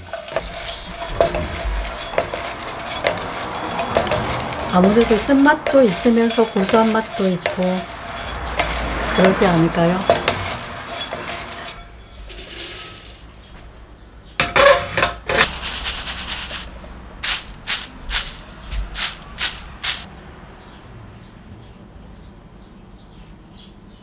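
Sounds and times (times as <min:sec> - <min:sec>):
pieces rattling in mesh strainer: 0:00.0 - 0:13.4, 0:15.4 - 0:20.1.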